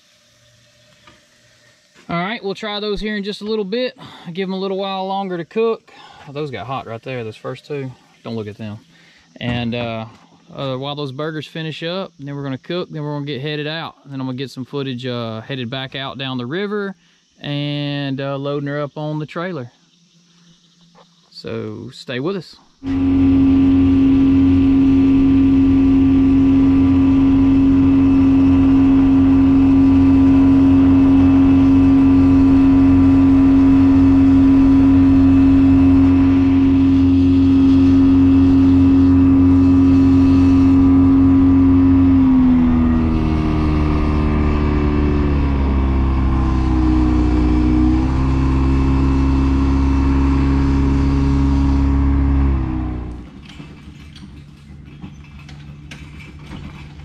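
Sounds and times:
boat motor droning: 0:00.0 - 0:10.8, 0:22.7 - 0:57.0.

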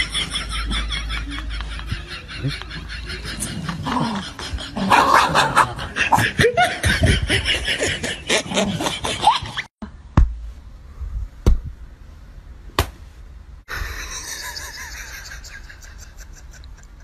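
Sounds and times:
sharp smacks: 0:11.4 - 0:11.7, 0:12.8 - 0:13.0.

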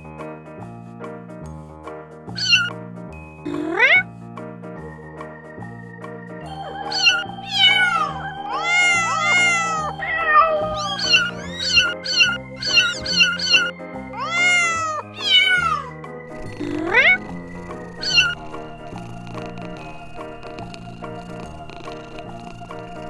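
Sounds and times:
background music: 0:00.0 - 0:23.0
kittens meowing: 0:02.3 - 0:02.7, 0:03.5 - 0:04.1, 0:06.7 - 0:16.0, 0:16.6 - 0:17.3, 0:17.9 - 0:18.5.

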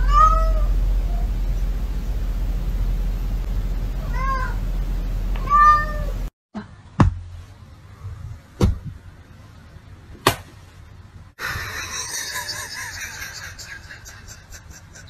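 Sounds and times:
cat meowing: 0:00.0 - 0:00.7, 0:04.1 - 0:04.6, 0:05.4 - 0:06.1
hands slapping: 0:10.2 - 0:10.5.

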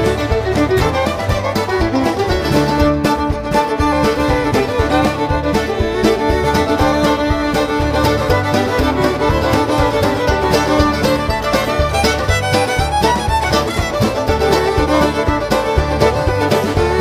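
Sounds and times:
bluegrass music with fiddle: 0:00.0 - 0:17.0.

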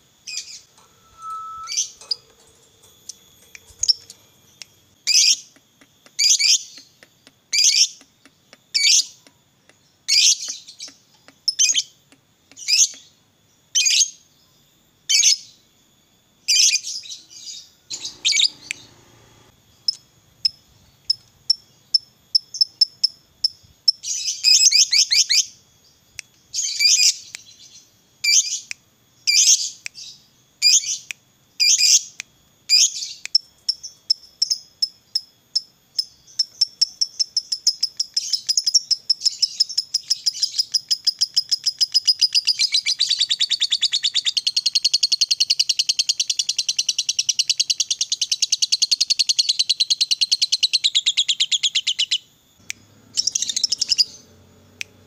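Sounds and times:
lovebird chirping and trilling: 0:00.3 - 0:02.3, 0:03.0 - 0:04.2, 0:16.5 - 0:19.1, 0:53.1 - 0:54.4.

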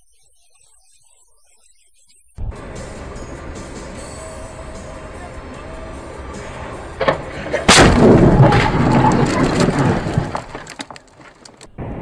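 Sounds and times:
car crash impact: 0:06.0 - 0:11.6
banging and crunching: 0:06.1 - 0:11.7.

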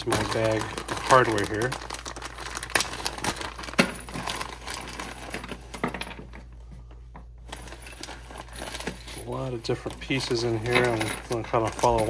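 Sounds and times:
plastic bag crinkling: 0:00.0 - 0:06.0, 0:07.5 - 0:12.0
hardware parts clinking: 0:07.2 - 0:12.0.

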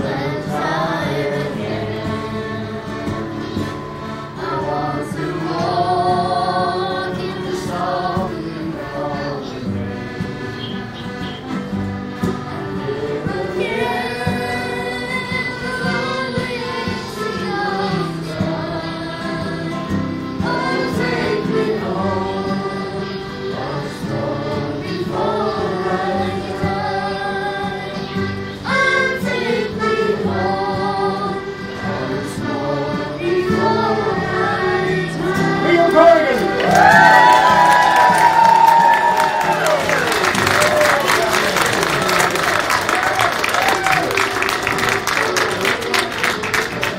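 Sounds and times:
voices singing along: 0:00.0 - 0:46.9
boy singing: 0:04.4 - 0:10.0, 0:12.5 - 0:19.8.

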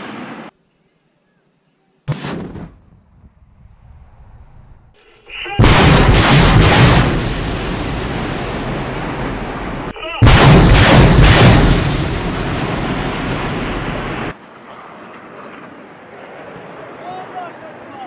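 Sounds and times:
rockets launching roar: 0:00.0 - 0:00.5, 0:05.3 - 0:14.4
quiet rushing background: 0:00.0 - 0:02.1.

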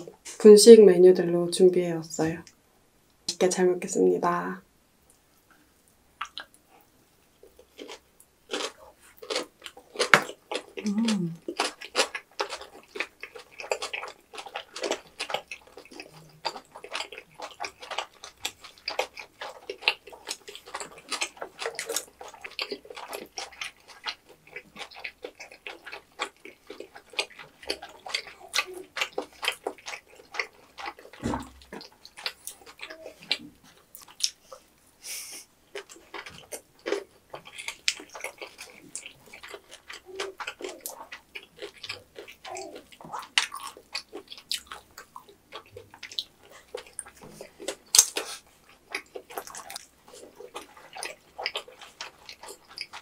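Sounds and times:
people chewing food: 0:00.0 - 0:00.6, 0:05.1 - 0:53.0
low thump: 0:31.2 - 0:31.6.

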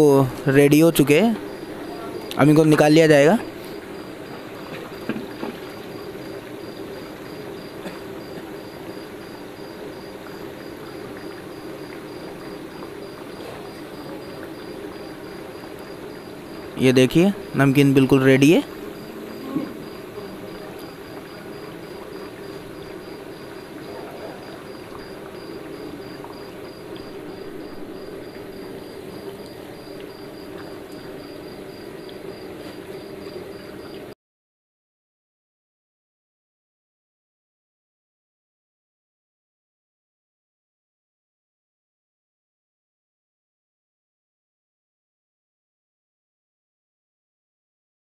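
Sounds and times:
deep-frying sizzle and bubbling: 0:00.0 - 0:34.2.

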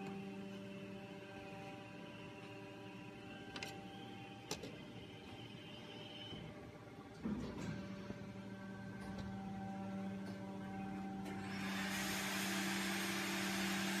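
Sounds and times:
moulding machine humming: 0:00.0 - 0:14.0.

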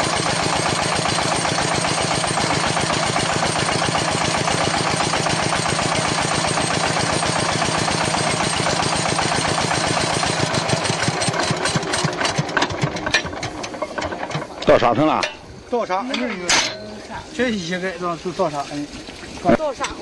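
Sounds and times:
drilling machine engine running: 0:00.0 - 0:15.6.

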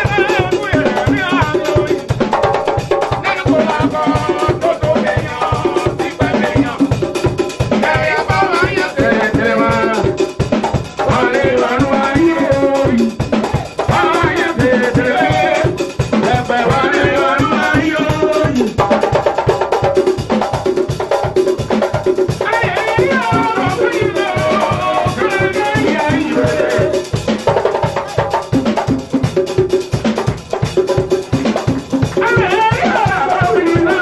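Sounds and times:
people singing into microphones: 0:00.0 - 0:18.9, 0:22.3 - 0:27.4, 0:32.0 - 0:34.0
drum kit beat: 0:00.0 - 0:34.0
shaken percussion: 0:00.0 - 0:34.0.

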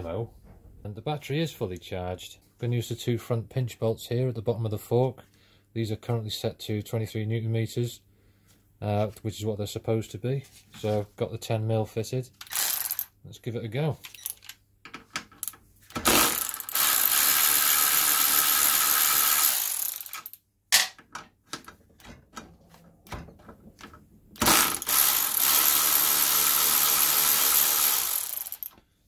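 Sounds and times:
cordless ratchet running: 0:12.4 - 0:13.1, 0:16.1 - 0:20.4, 0:24.4 - 0:28.8.

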